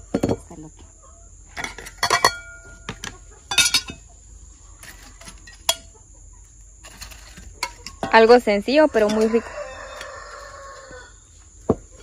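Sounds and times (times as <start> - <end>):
metal utensils clinking on dishes: 1.6 - 2.6, 3.5 - 4.0, 4.9 - 5.9, 9.0 - 10.1.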